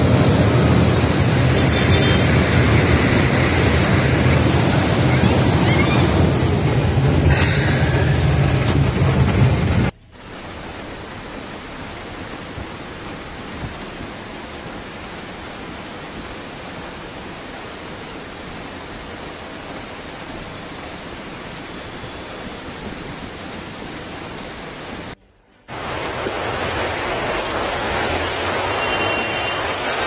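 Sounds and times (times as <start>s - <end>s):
floodwater rushing: 0.0s - 30.0s.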